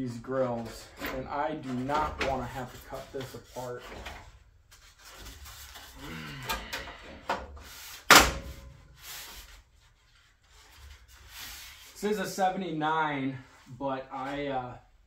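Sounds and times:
metal parts rubbing and scraping: 0.3 - 6.0
loud clunk: 8.1 - 8.7.

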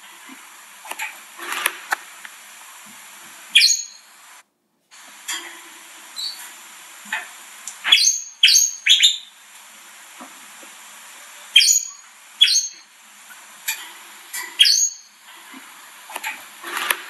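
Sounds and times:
canaries chirping: 3.5 - 4.1, 6.2 - 6.5, 7.8 - 9.4, 11.5 - 12.9, 14.4 - 15.2.

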